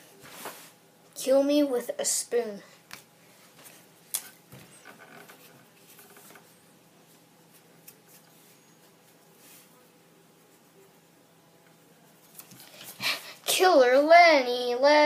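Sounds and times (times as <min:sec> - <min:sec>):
faint scuffing and rustling: 0:00.0 - 0:00.8
faint steady hum: 0:00.0 - 0:15.0.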